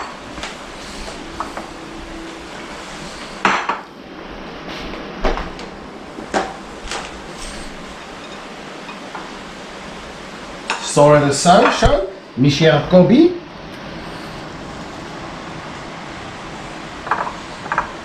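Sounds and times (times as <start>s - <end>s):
ceramic plates and utensils clinking: 7.5s - 9.2s.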